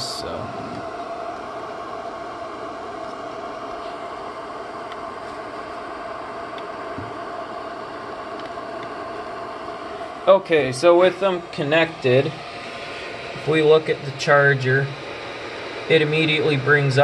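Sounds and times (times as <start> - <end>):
cooling fan whining: 0.0 - 17.0
faint clicks of plugs: 8.3 - 9.0.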